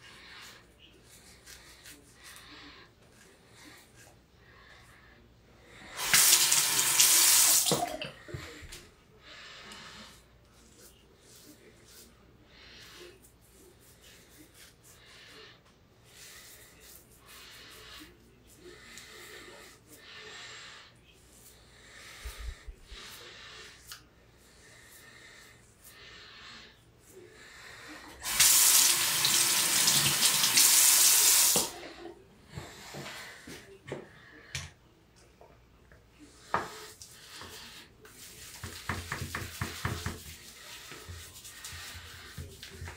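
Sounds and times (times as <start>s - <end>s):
sink tap running: 6.0s - 7.9s, 28.2s - 31.7s.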